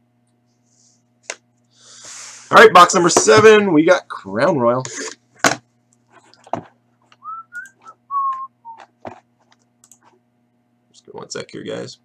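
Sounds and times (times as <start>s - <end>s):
person whistling short notes: 7.2s - 8.9s.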